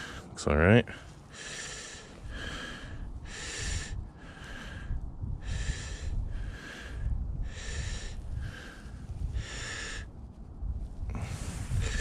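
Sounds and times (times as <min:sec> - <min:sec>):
man breathing hard through nose: 0:00.0 - 0:10.2, 0:11.0 - 0:12.0.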